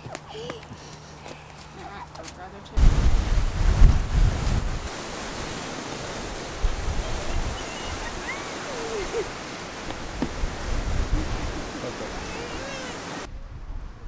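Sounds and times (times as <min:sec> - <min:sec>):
lake water along shore: 0:00.0 - 0:14.0
wind: 0:00.0 - 0:14.0
wind thump on microphone: 0:02.8 - 0:04.9, 0:09.8 - 0:11.8.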